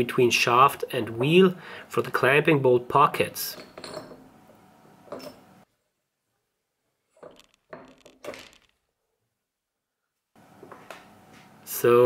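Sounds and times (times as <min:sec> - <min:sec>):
metal parts knocking and clinking: 0:03.6 - 0:04.3, 0:05.1 - 0:05.4, 0:07.2 - 0:08.8.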